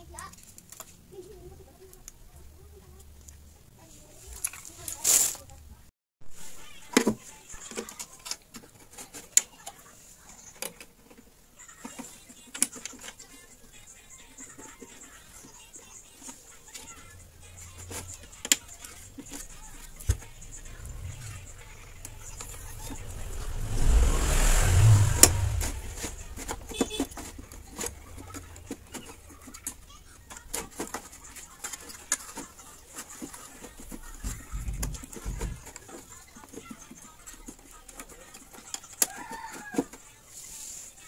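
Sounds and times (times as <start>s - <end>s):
low rumbling noise: 19.0s - 28.4s.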